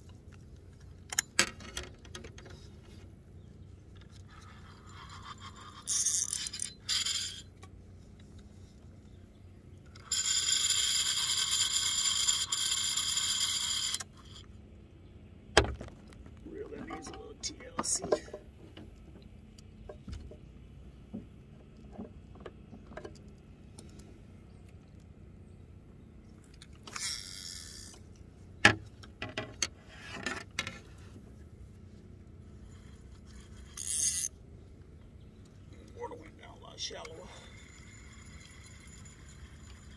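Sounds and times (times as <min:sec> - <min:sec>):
fishing reel whirring: 0:04.3 - 0:07.6, 0:09.9 - 0:14.4, 0:26.9 - 0:28.0, 0:32.6 - 0:34.3, 0:37.3 - 0:39.9
fishing reel clicks and knocks: 0:33.8 - 0:34.3.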